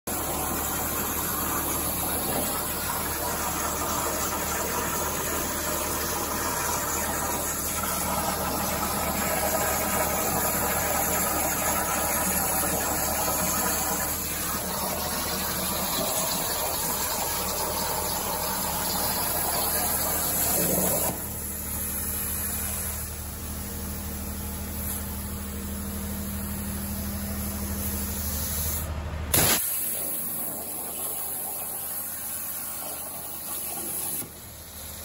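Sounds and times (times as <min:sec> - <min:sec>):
plasma arc hissing: 0:19.4 - 0:23.2, 0:24.7 - 0:25.2, 0:27.7 - 0:35.0.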